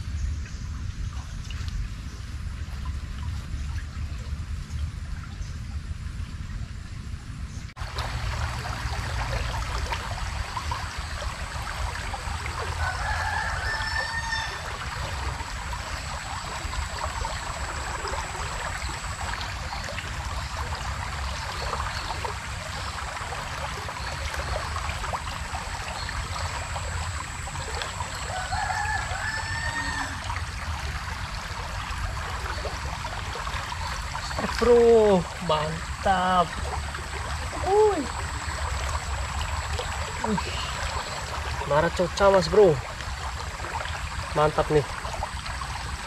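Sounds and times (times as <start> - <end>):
river water flowing: 7.7 - 46.0
rooster crowing: 12.8 - 14.7, 28.2 - 30.3.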